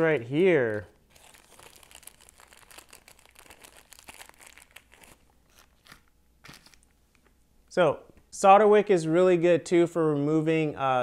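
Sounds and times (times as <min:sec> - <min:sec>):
plastic packet crinkling: 0:00.6 - 0:06.9.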